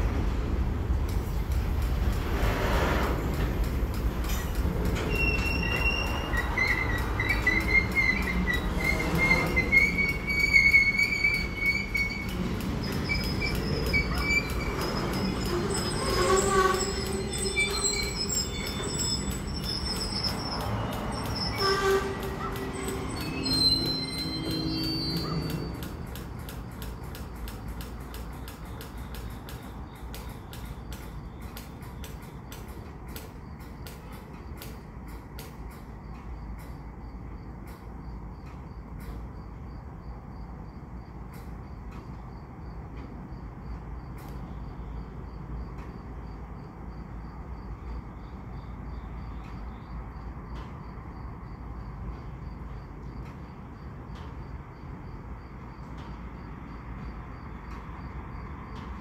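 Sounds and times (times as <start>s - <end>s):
crickets chirping: 0.0s - 59.0s
freight train rumble: 0.0s - 59.0s
even ticking clicks: 22.2s - 39.3s.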